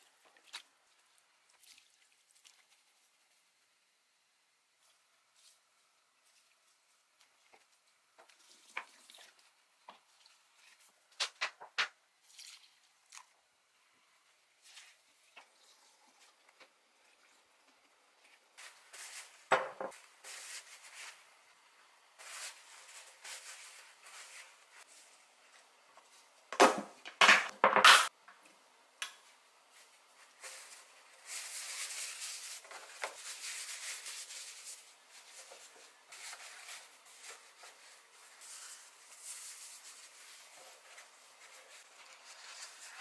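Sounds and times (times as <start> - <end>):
rustling hiss: 29.7 - 43.0.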